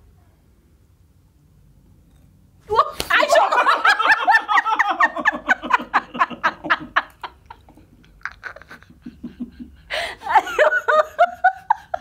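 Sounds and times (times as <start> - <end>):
person laughing: 3.2 - 12.0.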